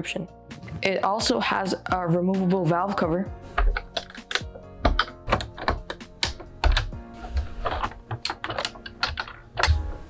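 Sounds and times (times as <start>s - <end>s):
background music: 0.0s - 10.0s
plastic bricks clicking and clattering: 3.6s - 9.8s.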